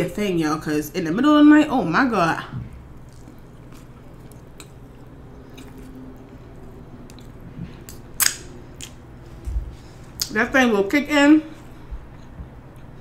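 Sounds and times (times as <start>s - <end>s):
person chewing: 2.9s - 9.4s, 11.6s - 13.0s
wet mouth clicks and smacks: 7.9s - 9.0s.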